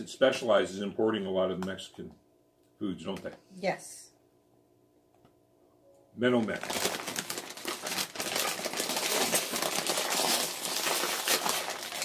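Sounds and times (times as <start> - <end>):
plastic chip bag crinkling: 6.4 - 12.0.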